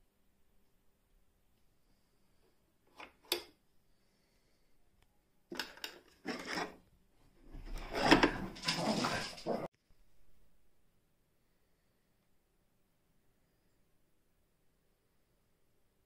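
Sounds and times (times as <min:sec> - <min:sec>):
wood rubbing and scraping: 0:06.1 - 0:09.7.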